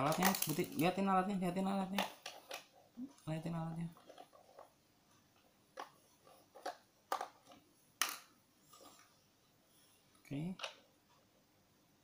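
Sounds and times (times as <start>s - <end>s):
plastic toy clicks: 0.0s - 0.9s.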